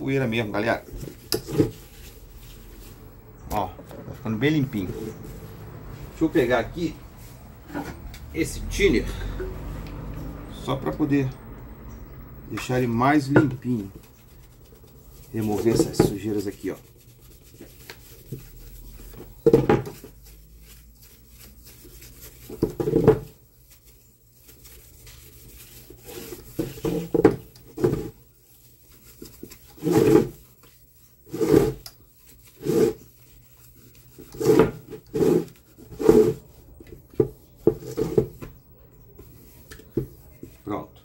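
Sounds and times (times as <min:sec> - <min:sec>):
cloth scrubbing: 0:00.0 - 0:08.1, 0:12.8 - 0:38.5.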